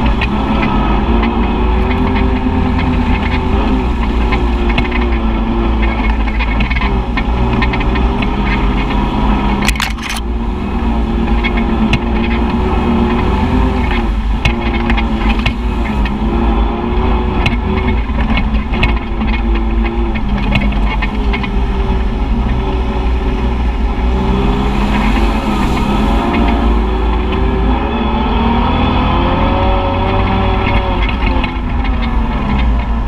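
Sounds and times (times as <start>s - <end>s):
clatter of clicks: 0.0s - 10.3s, 17.4s - 22.7s
utility vehicle engine revving: 0.0s - 33.0s.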